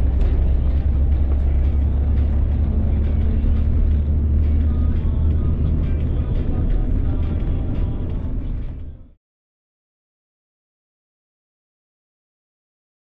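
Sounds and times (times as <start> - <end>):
road and engine rumble: 0.0 - 9.2.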